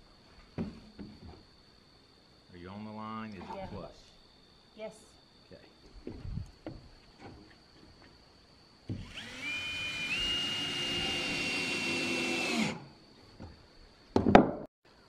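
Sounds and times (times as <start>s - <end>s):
cordless drill driving screw: 8.9s - 12.8s.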